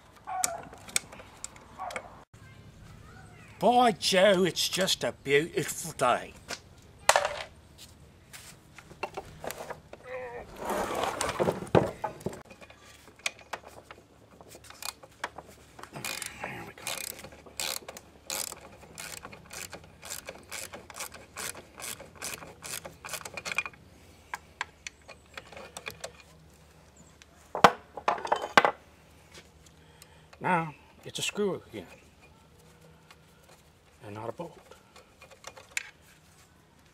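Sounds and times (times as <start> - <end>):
ratchet wrench clicking: 16.0 - 23.7.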